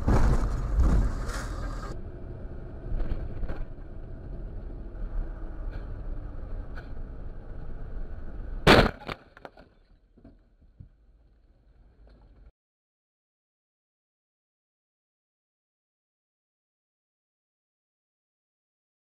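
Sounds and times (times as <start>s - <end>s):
vehicle crash: 0.0s - 10.4s
engine and road rumble: 0.0s - 12.5s.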